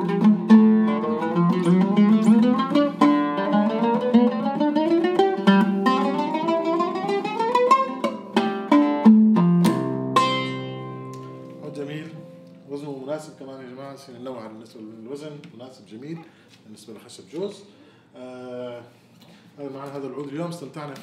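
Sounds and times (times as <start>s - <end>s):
oud notes picked: 0.0s - 12.9s.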